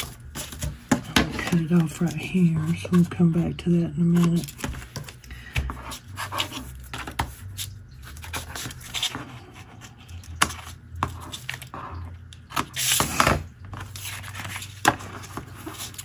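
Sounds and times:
paper rustling and scraping: 0:00.0 - 0:03.1, 0:04.1 - 0:16.0
low steady hum: 0:00.0 - 0:16.0.

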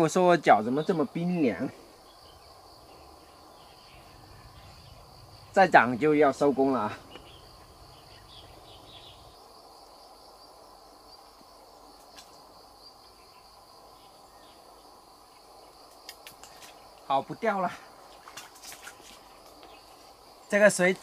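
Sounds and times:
insects chirring: 0:00.0 - 0:21.0
faint clicks: 0:15.4 - 0:17.1.

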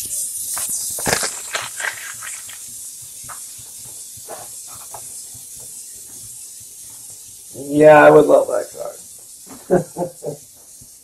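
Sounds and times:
steady high hiss: 0:00.0 - 0:11.0
cards tapping and rustling: 0:00.5 - 0:02.7.

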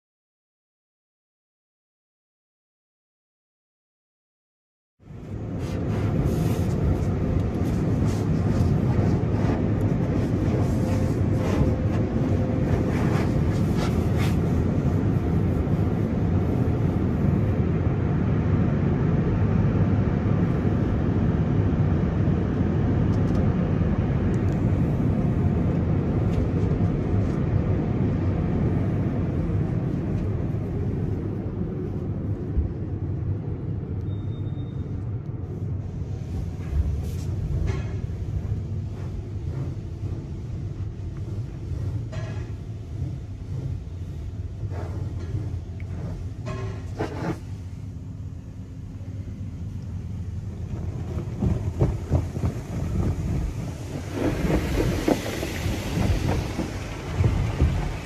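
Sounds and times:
water spray pelting a car: 0:05.4 - 0:17.4, 0:50.3 - 0:58.0.

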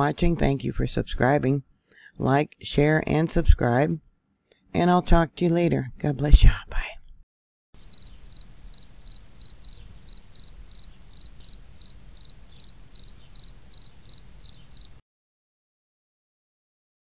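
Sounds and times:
cricket-like chirping: 0:07.8 - 0:15.0.

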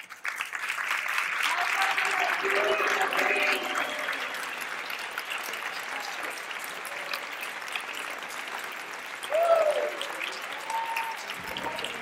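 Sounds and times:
audience applauding: 0:00.0 - 0:12.0
person whooping: 0:09.3 - 0:11.8.

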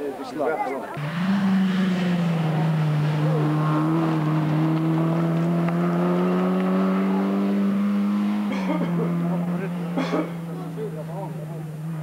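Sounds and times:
car engine at high revs: 0:00.9 - 0:12.0.

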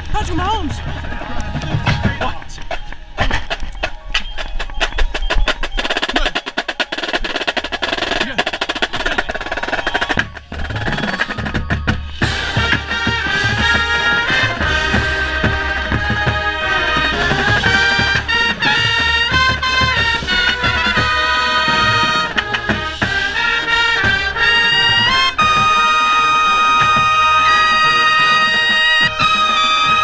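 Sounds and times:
snare and tenor drums: 0:00.2 - 0:30.0
brass chords: 0:12.2 - 0:30.0.

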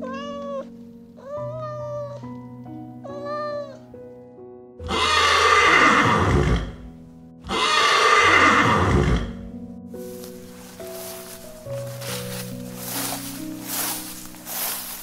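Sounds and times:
cat meowing: 0:00.0 - 0:02.4, 0:03.0 - 0:03.9
background music: 0:00.0 - 0:15.0
horse neighing loudly: 0:04.8 - 0:06.8, 0:07.4 - 0:09.4.

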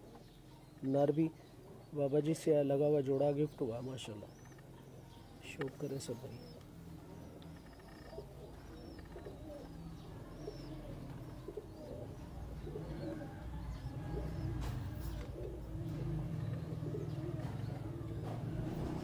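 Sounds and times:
pigeons cooing: 0:04.2 - 0:19.0.

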